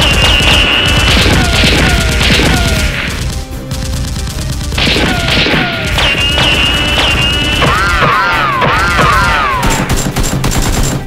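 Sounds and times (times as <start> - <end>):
pounding action music: 0.0 - 11.0
rapid gunfire: 0.0 - 11.0.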